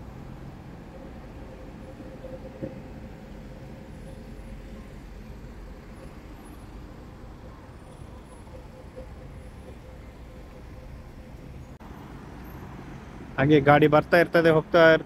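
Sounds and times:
constant hum: 0:00.0 - 0:12.0
low traffic rumble: 0:00.0 - 0:15.0.

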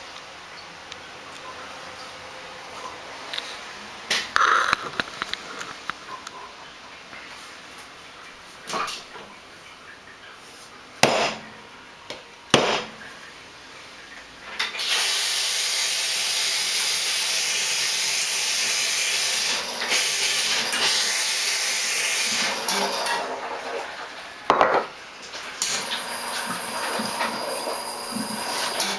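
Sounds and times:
espresso machine hissing: 0:14.8 - 0:23.1, 0:25.8 - 0:28.9.

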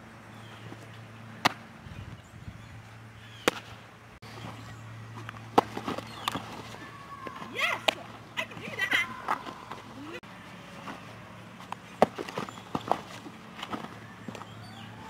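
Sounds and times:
light knocks of ball handling: 0:00.6 - 0:01.7, 0:03.4 - 0:03.8, 0:04.5 - 0:10.0
ball smacking into leather mitt: 0:01.4 - 0:01.7, 0:03.4 - 0:03.7.

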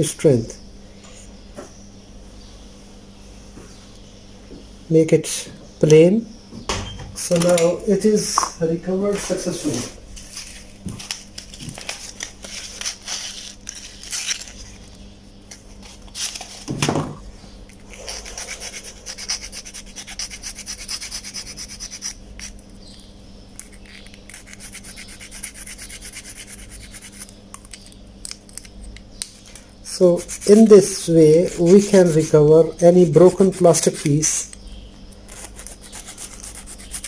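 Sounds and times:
needle file rasping on plastic: 0:18.0 - 0:22.5, 0:35.3 - 0:37.0.

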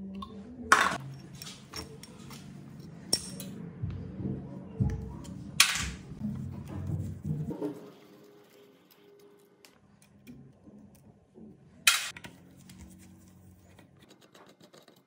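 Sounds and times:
metal tools clinking and scraping: 0:01.0 - 0:03.6.

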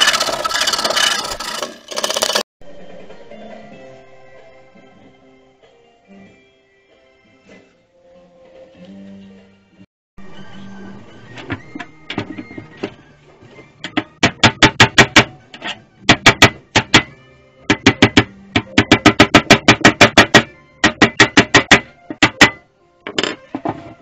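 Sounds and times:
hammer striking sheet metal: 0:17.7 - 0:22.6.

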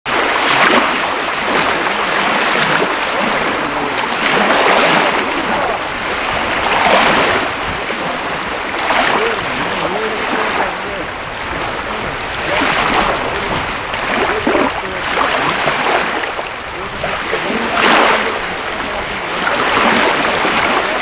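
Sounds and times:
sea waves washing on beach: 0:00.1 - 0:21.0.

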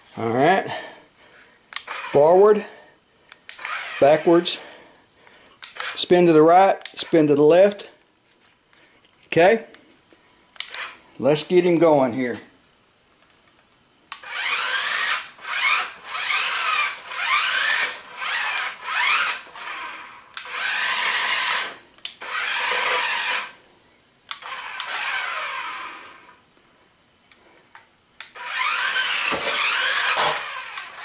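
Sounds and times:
toy car electric motors whining: 0:01.8 - 0:02.2, 0:03.5 - 0:04.8, 0:05.6 - 0:06.0, 0:10.6 - 0:11.0, 0:14.1 - 0:23.6, 0:24.3 - 0:26.4, 0:28.2 - 0:31.0.

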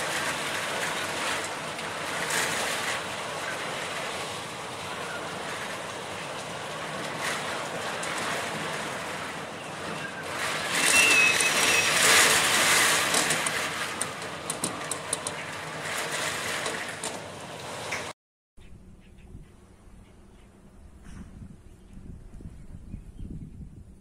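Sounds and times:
rain against glass door: 0:00.0 - 0:18.1
rattling clicks: 0:10.4 - 0:17.3
high whistle: 0:10.8 - 0:12.1
wind gusting: 0:19.2 - 0:24.0.

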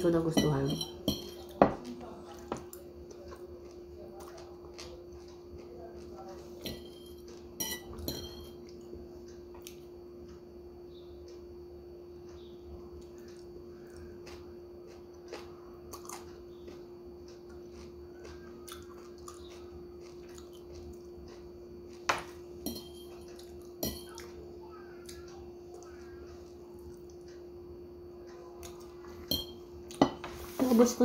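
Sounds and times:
steady hum: 0:00.0 - 0:31.0
fork clinking against plate: 0:00.4 - 0:01.8, 0:06.6 - 0:08.6, 0:22.2 - 0:24.3, 0:29.2 - 0:30.2
person chewing food: 0:01.4 - 0:06.6, 0:12.4 - 0:27.5.

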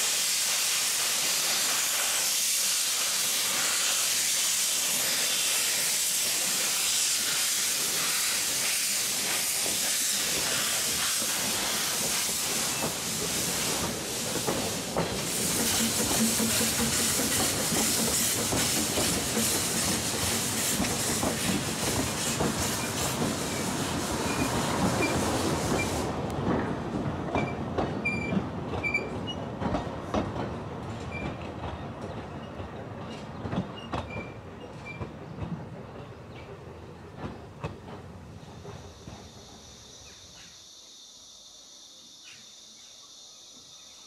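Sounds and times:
loud steam hiss: 0:00.0 - 0:26.5, 0:38.4 - 0:44.0
wheels clicking over rail joints: 0:09.2 - 0:23.6.

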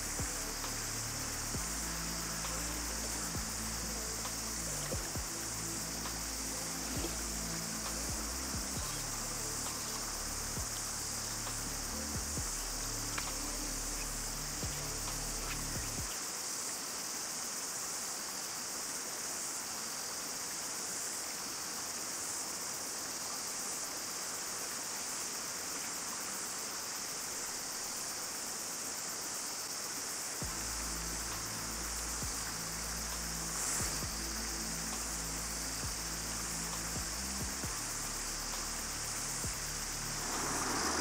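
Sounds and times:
low-toned background music: 0:00.0 - 0:16.1, 0:30.4 - 0:41.0
cicadas singing: 0:00.0 - 0:41.0
river water hissing: 0:00.0 - 0:41.0.

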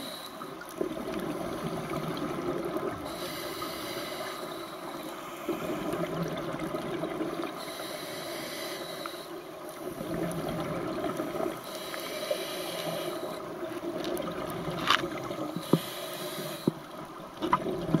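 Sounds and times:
regulator inhale hiss: 0:00.0 - 0:00.6, 0:03.0 - 0:06.1, 0:07.6 - 0:09.5, 0:11.6 - 0:13.5, 0:15.6 - 0:16.9
exhaled bubbles gurgling: 0:00.0 - 0:04.2, 0:04.9 - 0:08.0, 0:09.6 - 0:18.0.

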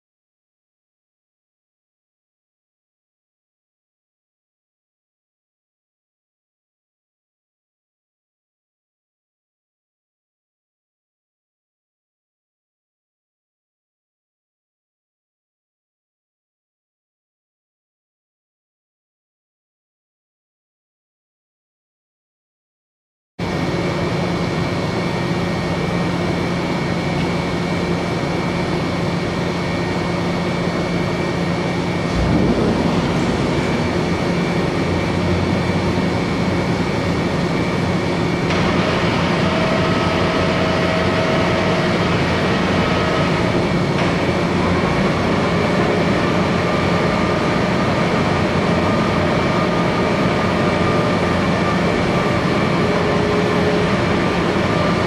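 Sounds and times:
boring mill machine hum: 0:23.4 - 0:55.0
machine whining tones: 0:27.4 - 0:55.0
low thump: 0:32.1 - 0:35.3.

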